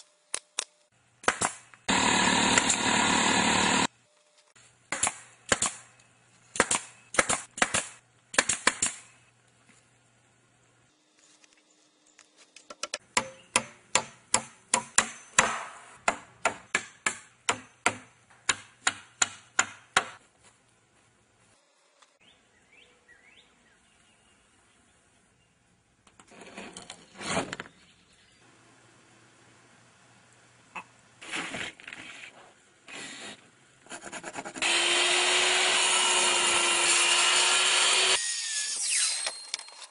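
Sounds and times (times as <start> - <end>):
nail gun firing into wood: 1.2 - 1.6, 6.6 - 9.0.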